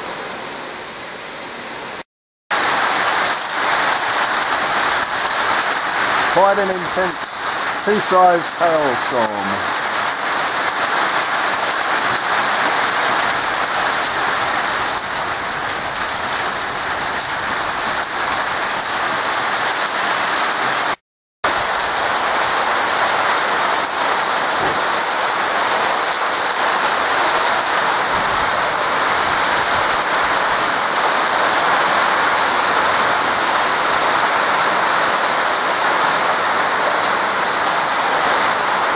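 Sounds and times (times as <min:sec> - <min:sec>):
hail pattering on surfaces: 0:02.6 - 0:28.4.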